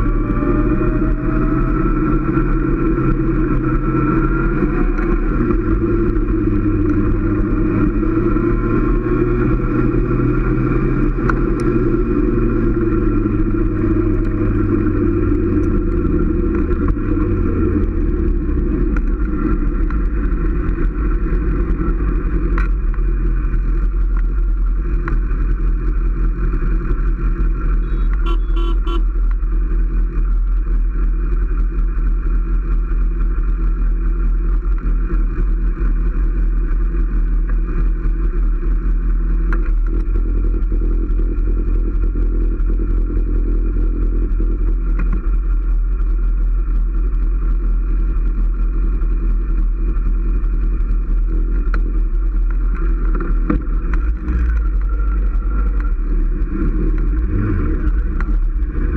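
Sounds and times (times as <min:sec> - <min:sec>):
motorcycle engine running: 0:00.0 - 0:58.9.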